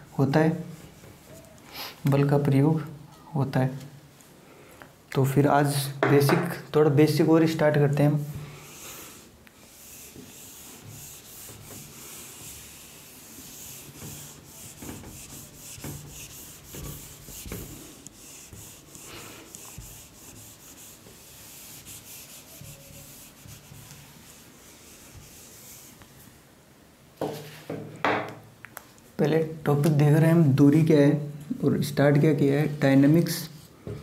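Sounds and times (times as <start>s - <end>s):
duster rubbing on whiteboard: 8.2s - 26.3s.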